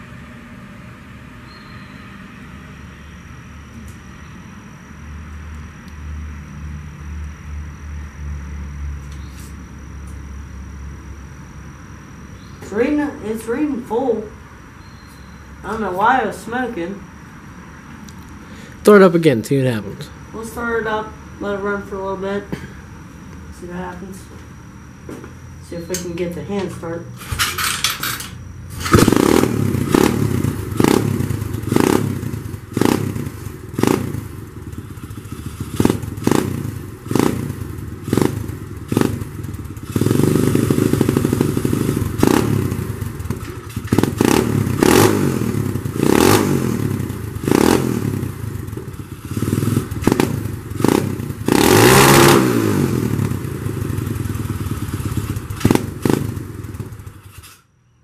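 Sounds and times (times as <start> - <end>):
motorbike engine revving: 28.7 - 57.6.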